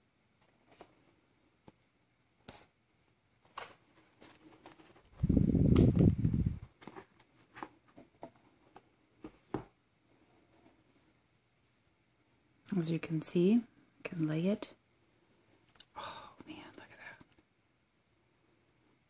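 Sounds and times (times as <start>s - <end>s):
plastic packaging rustle: 3.5s - 5.2s.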